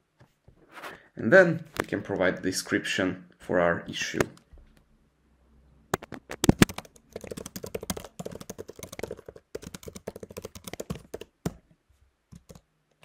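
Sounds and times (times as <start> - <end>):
typing on computer keyboard: 6.0 - 11.6, 12.3 - 12.6.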